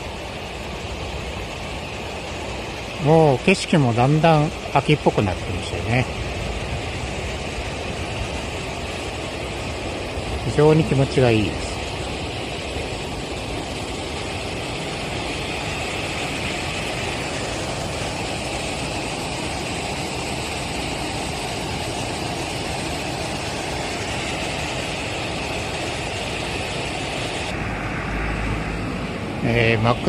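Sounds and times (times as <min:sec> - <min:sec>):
water pouring over weir: 0:00.0 - 0:27.5.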